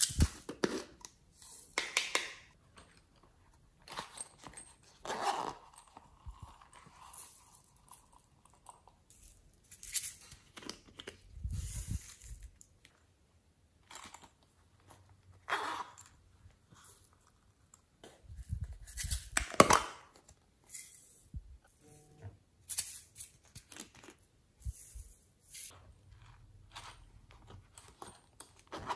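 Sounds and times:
zipper: 5.0s - 7.6s, 15.4s - 16.2s.

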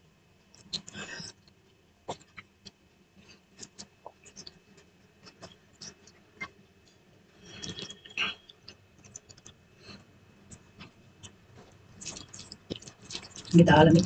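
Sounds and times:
soft chewing and mouth clicks: 0.4s - 14.0s
fingers mixing rice on a plate: 0.5s - 14.0s.

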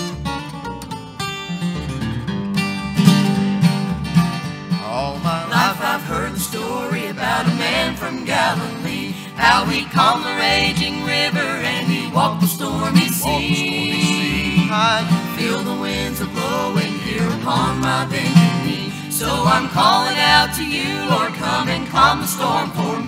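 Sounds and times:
acoustic guitars strumming: 0.0s - 23.0s
upright bass plucking: 0.0s - 23.0s
several voices singing together: 4.9s - 23.0s.

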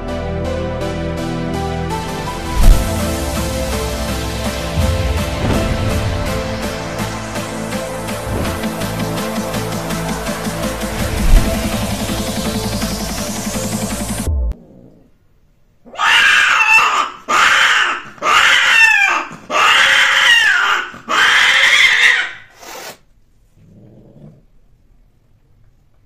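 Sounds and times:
cat yowling: 15.9s - 22.5s.

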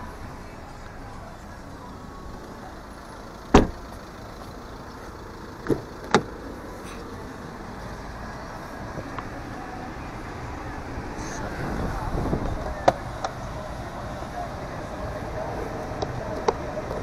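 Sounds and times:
car door handle clicks: 3.5s - 3.8s, 5.6s - 6.3s
car door slamming shut: 3.5s - 3.8s, 5.6s - 6.4s.

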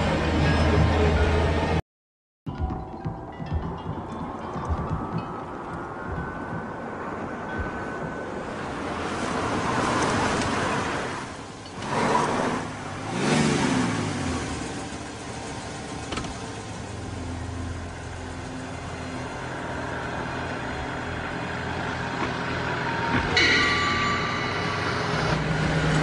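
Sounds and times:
car engine revving: 11.8s - 17.2s.

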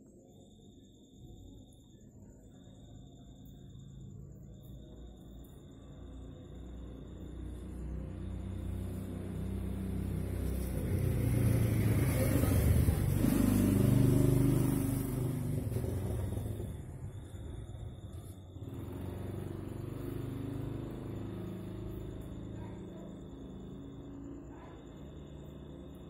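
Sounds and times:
vehicle engine passing by: 5.8s - 26.0s.

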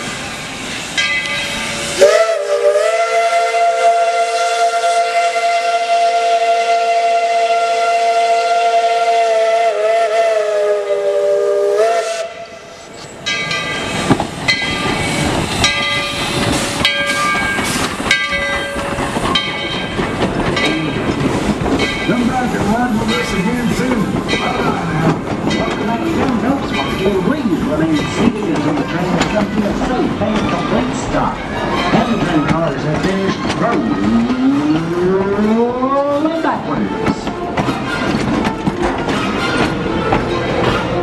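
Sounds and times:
train rolling past with clanks: 0.0s - 9.2s, 12.2s - 41.0s
steam whistle chord: 1.8s - 12.7s.

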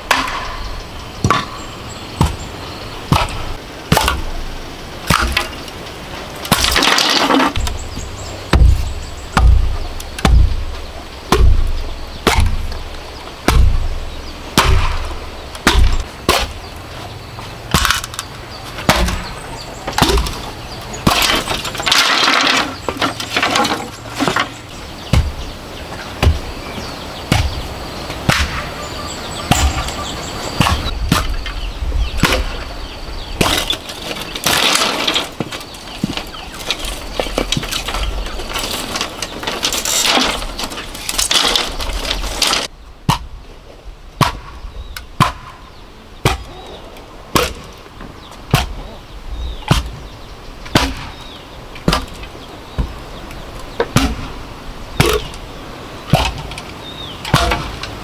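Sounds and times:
sharp knocks: 0.0s - 2.5s, 3.1s - 4.3s, 6.5s - 16.6s, 18.8s - 25.5s
bamboo cracking and splintering: 5.1s - 5.8s, 6.4s - 7.8s, 17.7s - 24.5s, 33.4s - 43.3s
hammer blows on bamboo: 7.6s - 16.8s, 44.2s - 46.7s, 47.3s - 47.8s, 48.4s - 53.0s, 53.7s - 54.4s, 55.0s - 55.4s, 57.2s - 58.0s.

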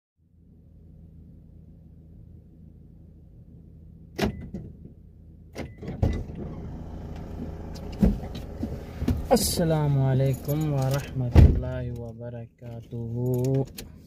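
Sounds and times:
outside noise: 0.2s - 14.0s
car engine idling: 6.3s - 11.3s.

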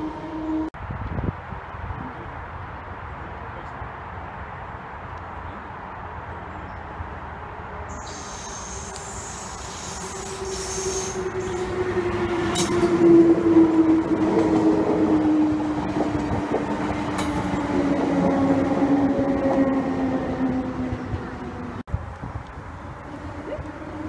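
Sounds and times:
faint high squeal: 7.9s - 12.0s
train whine falling in pitch: 7.9s - 21.0s
train wheels on rails: 7.9s - 21.8s.

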